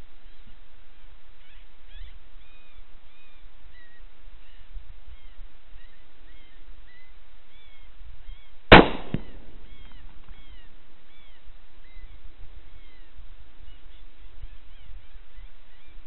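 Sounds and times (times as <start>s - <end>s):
rifle shot: 8.7s - 9.6s.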